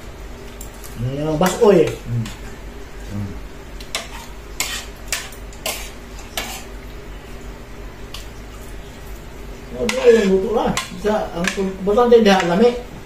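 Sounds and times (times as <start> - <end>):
cutlery scraping a ceramic plate: 3.9 - 6.7, 9.9 - 11.6.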